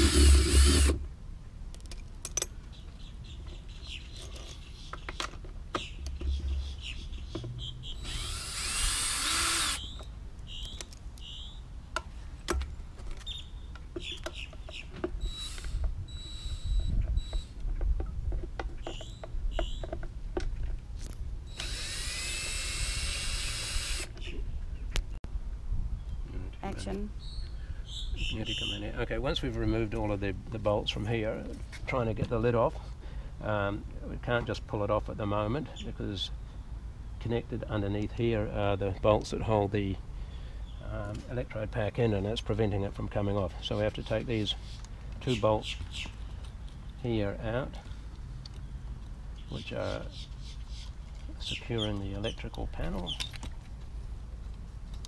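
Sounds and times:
cordless drill: 0:00.0 - 0:01.0, 0:08.0 - 0:09.9, 0:21.5 - 0:24.1.

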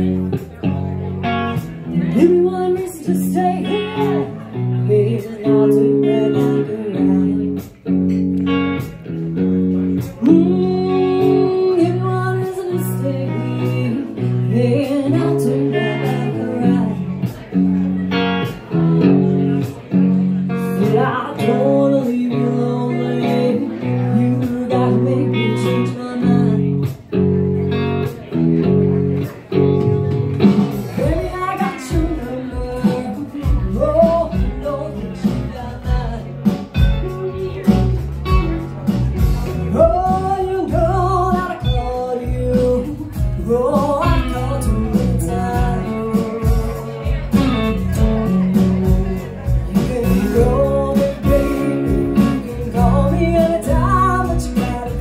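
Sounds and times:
guitar chords: 0:00.0 - 0:55.0
woman singing lead vocal: 0:02.0 - 0:07.8, 0:10.2 - 0:17.9, 0:20.6 - 0:27.0, 0:30.9 - 0:38.0, 0:39.5 - 0:55.0.

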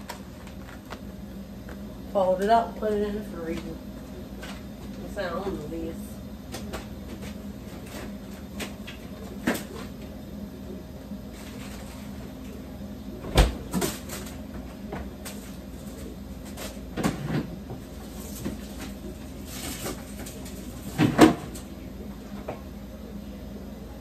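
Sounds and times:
fridge door shutting with thud: 0:13.2 - 0:14.1, 0:20.9 - 0:21.6
knocks and clunks at fridge: 0:13.2 - 0:14.1, 0:16.9 - 0:18.6, 0:20.8 - 0:21.6.

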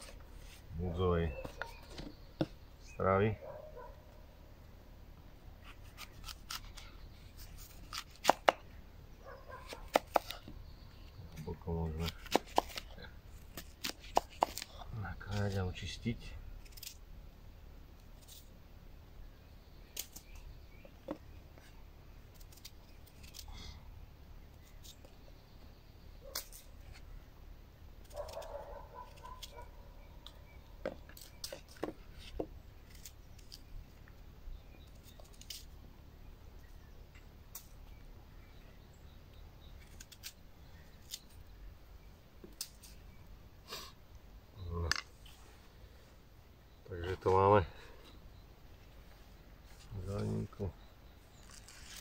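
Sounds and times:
knife cutting an apple: 0:05.6 - 0:08.7, 0:09.5 - 0:10.5, 0:11.8 - 0:15.6, 0:28.0 - 0:29.7.

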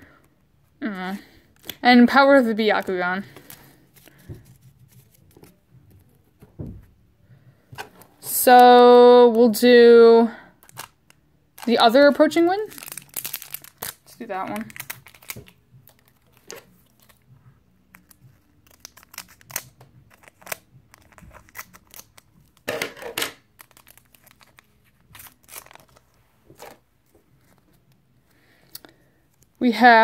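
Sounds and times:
foil pack tearing and crinkling: 0:10.6 - 0:11.0, 0:12.6 - 0:17.2, 0:17.9 - 0:22.7, 0:23.4 - 0:26.1.

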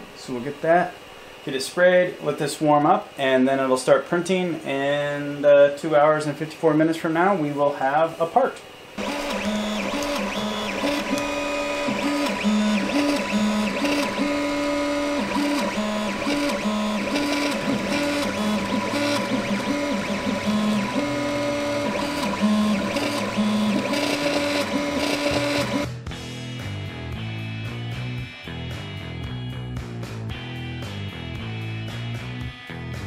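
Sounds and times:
fan whine: 0:00.0 - 0:26.0
stepper motors humming: 0:09.0 - 0:25.9.

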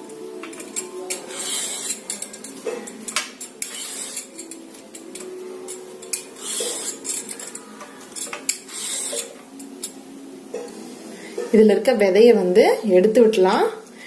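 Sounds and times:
metal clinking on steel plate: 0:00.4 - 0:10.7.

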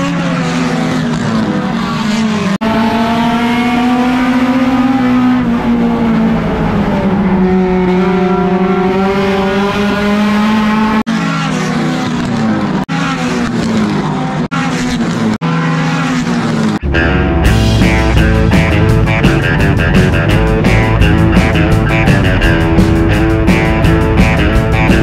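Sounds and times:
race car engine at high revs: 0:00.0 - 0:16.9.

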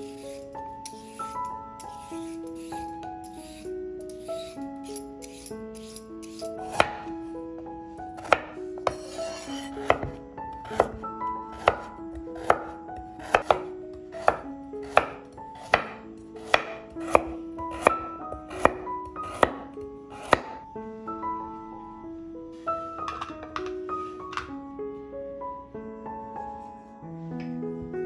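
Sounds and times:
soft background music: 0:00.0 - 0:28.0
knife chopping carrot on wooden board: 0:05.3 - 0:07.1, 0:08.2 - 0:20.6.

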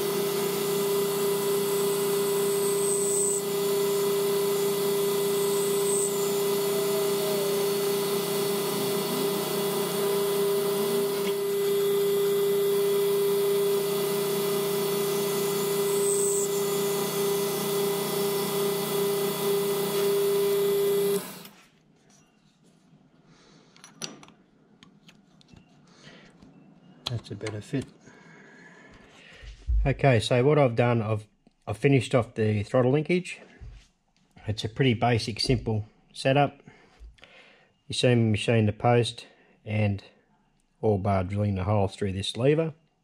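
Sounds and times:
end mill cutting brass: 0:00.0 - 0:21.6
milling machine humming: 0:00.0 - 0:21.6.

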